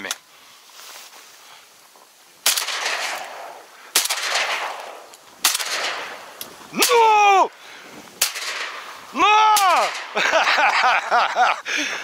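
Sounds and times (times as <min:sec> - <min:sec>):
shotgun blasts with echo: 0:02.4 - 0:07.0, 0:08.2 - 0:08.9, 0:09.6 - 0:10.2
person shouting: 0:06.7 - 0:07.5, 0:09.1 - 0:09.9.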